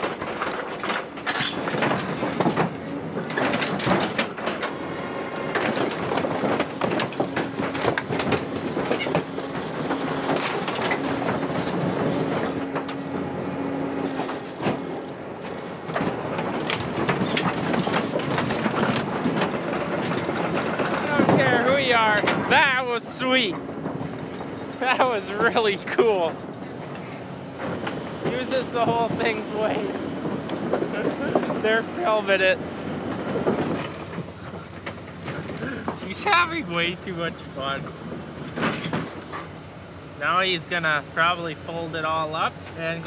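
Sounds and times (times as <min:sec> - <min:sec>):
excavator engine running: 0:00.0 - 0:43.0
sheet steel crumpling and creaking: 0:00.0 - 0:43.0.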